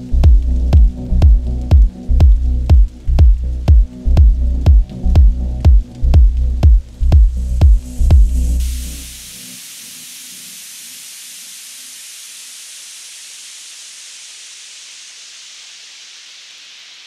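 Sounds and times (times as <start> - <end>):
low music notes: 0.0 - 9.1
steady static hiss: 0.0 - 17.0.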